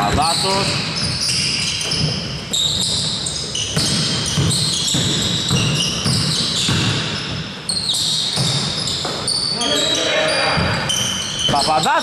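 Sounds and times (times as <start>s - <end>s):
basketball bouncing: 0.0s - 9.4s
sneakers squeaking on floor: 0.0s - 12.0s.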